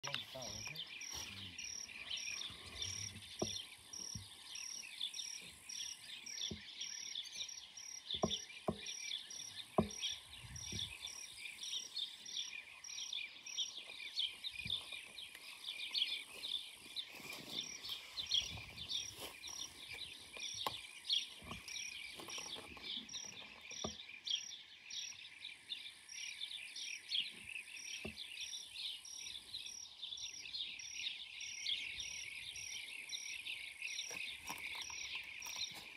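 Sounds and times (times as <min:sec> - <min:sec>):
bird colony chattering: 0:00.0 - 0:07.5
high insect chirp: 0:00.0 - 0:35.9
soft knocks: 0:09.8 - 0:10.9.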